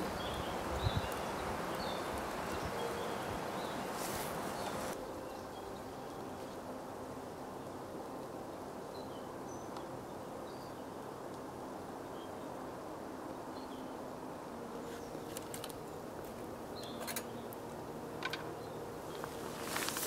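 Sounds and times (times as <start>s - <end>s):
forest ambience: 0.0s - 20.0s
wire grill basket clinking: 16.8s - 17.6s.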